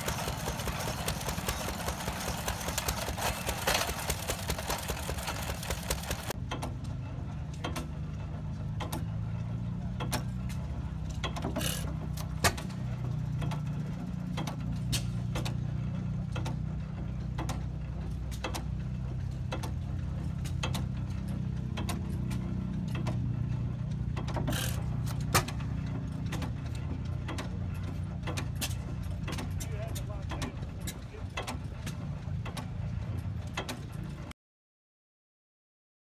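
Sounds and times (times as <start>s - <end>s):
louder engine bursts: 0.0s - 6.3s
gas engine clicking: 0.0s - 6.7s
engine low rumble: 0.0s - 34.3s.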